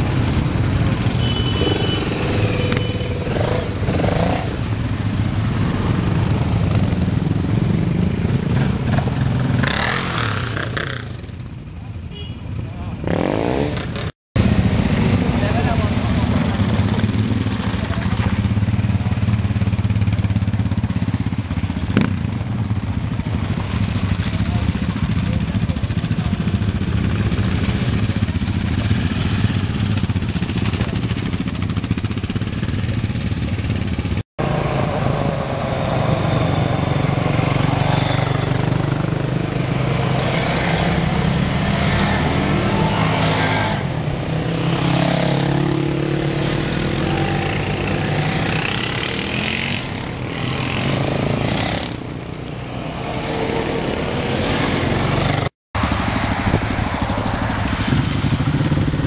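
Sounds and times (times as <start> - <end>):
quad bike engines driving past: 0.0 - 59.0.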